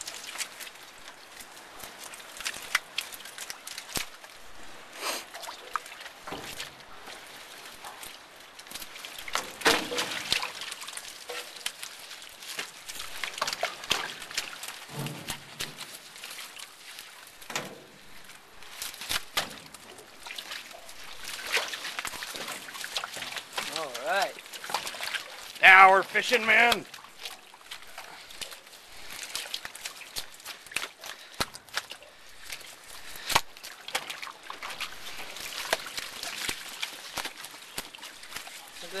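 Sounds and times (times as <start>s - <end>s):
water splashing and dripping: 0.0s - 39.0s
knocks from handling net: 9.3s - 10.4s, 14.9s - 15.9s, 17.5s - 17.9s, 19.1s - 19.8s.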